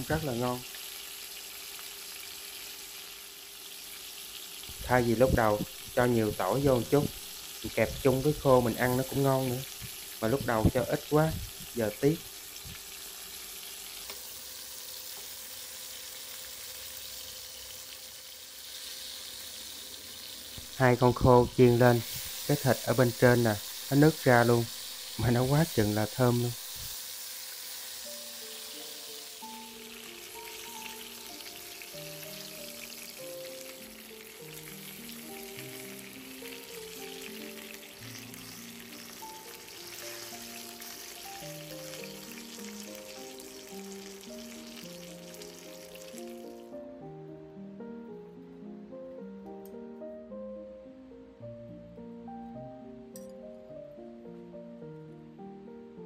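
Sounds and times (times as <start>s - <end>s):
oil sizzling in a pan: 0.0s - 46.8s
background music of held notes: 28.0s - 56.0s.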